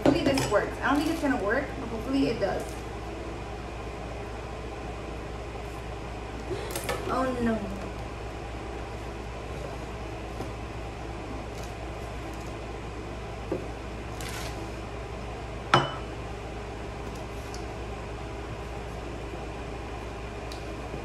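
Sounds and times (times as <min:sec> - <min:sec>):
low room hum: 0:00.0 - 0:21.0.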